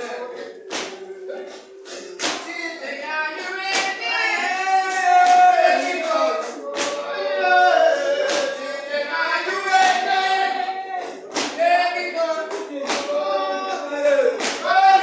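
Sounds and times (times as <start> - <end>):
sharp percussive beat: 0.0 - 7.2, 7.8 - 15.0
congregation singing: 0.0 - 15.0.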